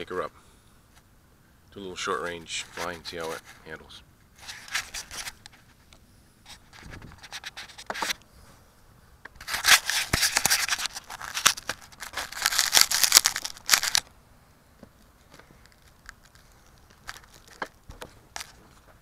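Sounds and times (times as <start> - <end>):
hands rubbing plastic airframe: 4.4 - 5.8, 9.4 - 14.0.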